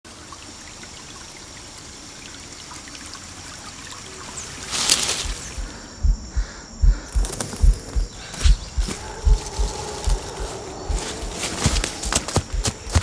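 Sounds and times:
water trickling: 0:00.1 - 0:06.1
water drips: 0:00.1 - 0:13.0
deep low thuds: 0:05.2 - 0:13.0.

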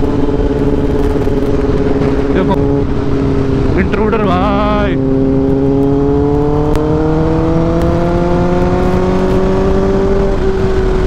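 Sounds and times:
wind and road rumble: 0:00.0 - 0:11.0.

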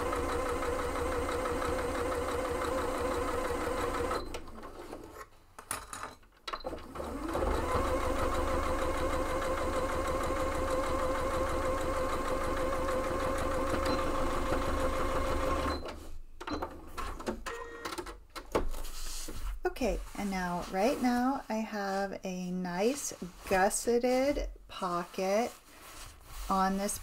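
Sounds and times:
sewing machine stitching: 0:00.0 - 0:05.2, 0:06.6 - 0:16.0.

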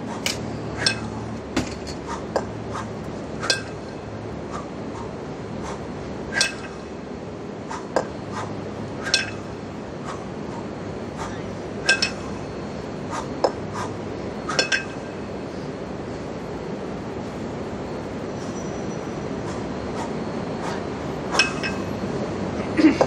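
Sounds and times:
steady background noise: 0:00.0 - 0:23.0
kettlebells clinking: 0:00.2 - 0:02.5, 0:03.4 - 0:04.1, 0:06.3 - 0:06.9, 0:09.0 - 0:09.6, 0:11.8 - 0:12.4, 0:14.5 - 0:15.4, 0:21.3 - 0:22.0.

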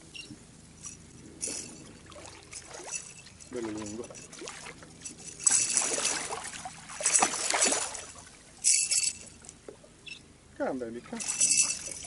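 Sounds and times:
fish splashing at water surface: 0:05.4 - 0:09.0.

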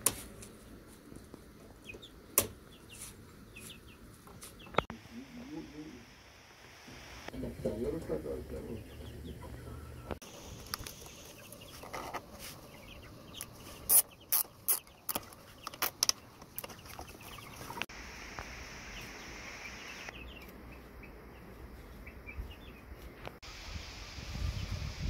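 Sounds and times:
chickens clucking: 0:07.3 - 0:17.9.

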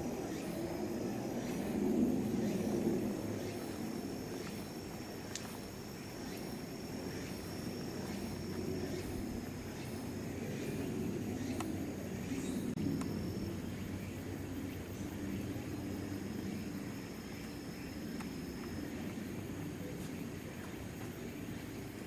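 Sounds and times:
insects trilling: 0:00.0 - 0:22.0
sharp tick: 0:05.3 - 0:05.6.

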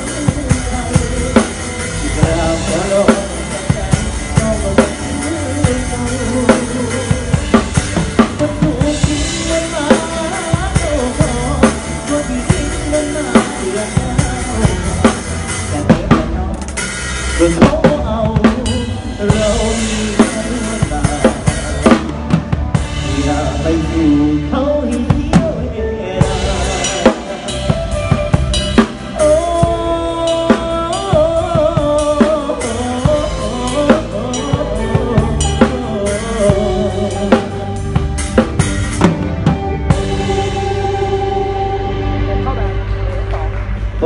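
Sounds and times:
band playing: 0:00.0 - 0:44.0
drum kit beat: 0:00.0 - 0:44.0.

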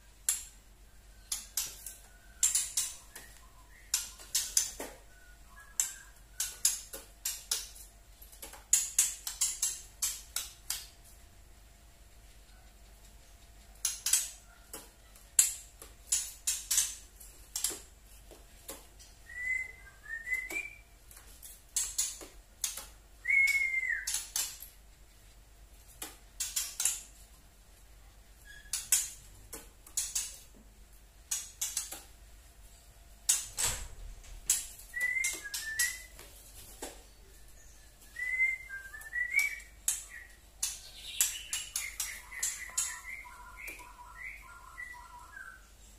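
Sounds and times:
bird whistled phrases: 0:23.2 - 0:24.2, 0:34.9 - 0:36.1, 0:41.4 - 0:45.6.

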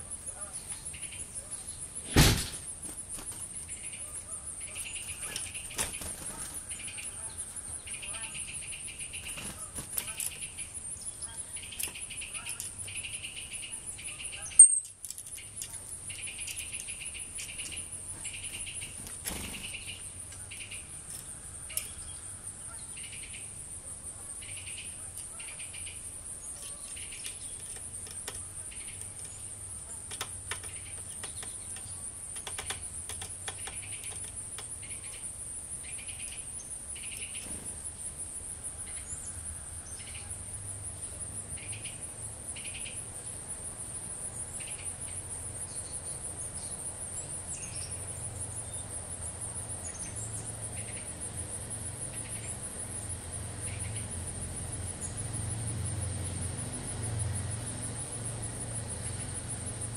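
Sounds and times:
crickets trilling: 0:00.0 - 0:59.9
sharp clicks: 0:30.0 - 0:34.7.

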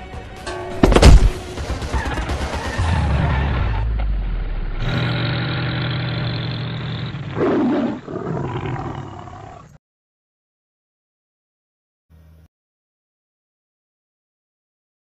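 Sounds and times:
tiger roaring: 0:04.8 - 0:09.8.

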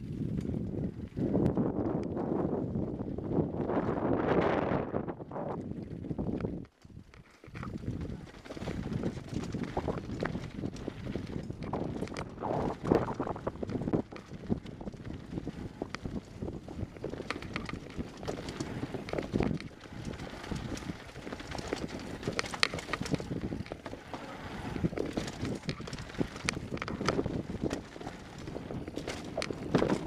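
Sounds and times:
mountain bike rattling: 0:00.0 - 0:30.0
wind noise on microphone: 0:00.0 - 0:30.0
tyres crunching over stones: 0:16.8 - 0:30.0.

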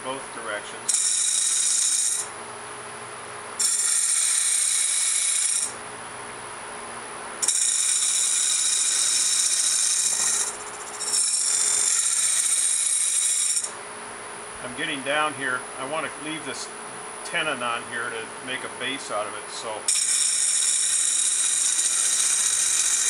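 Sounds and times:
lathe cutter hissing cut: 0:00.9 - 0:02.3, 0:03.6 - 0:05.7, 0:07.4 - 0:13.7, 0:19.9 - 0:23.0
wood lathe humming: 0:00.9 - 0:02.3, 0:03.6 - 0:05.8, 0:07.4 - 0:13.8, 0:19.9 - 0:23.0.

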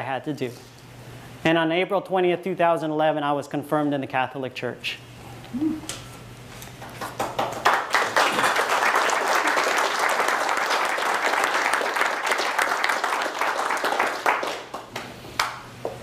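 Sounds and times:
audience applauding: 0:07.0 - 0:15.6.

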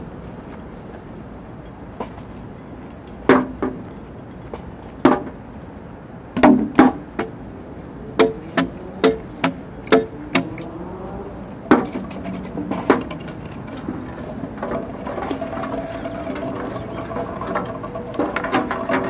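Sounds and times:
objects struck by hand: 0:08.2 - 0:10.7.

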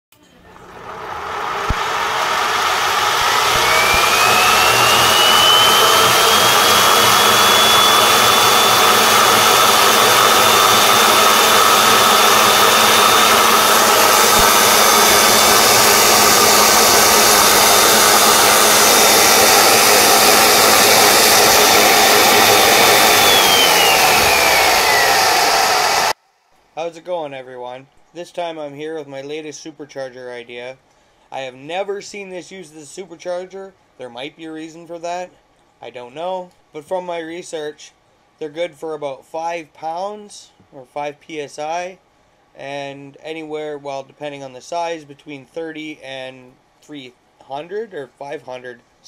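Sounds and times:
blower airy rush and whine: 0:00.4 - 0:26.2.

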